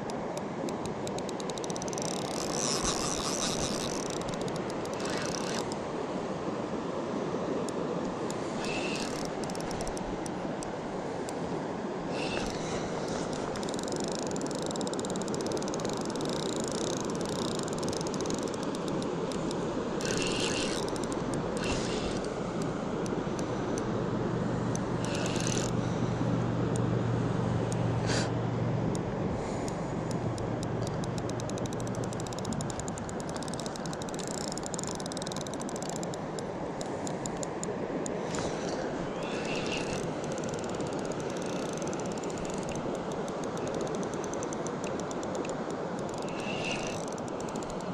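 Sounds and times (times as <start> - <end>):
fishing reel clicking: 0.0 - 5.8, 8.3 - 10.4, 12.2 - 23.9, 24.8 - 25.8, 29.7 - 47.9
short hissing bursts: 46.3 - 47.0.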